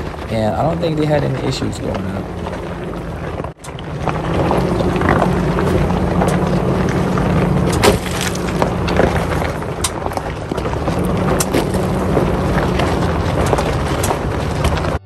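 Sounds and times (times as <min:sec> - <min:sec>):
tyres crunching over gravel: 0:00.0 - 0:15.0
vehicle low rumble: 0:00.0 - 0:15.0.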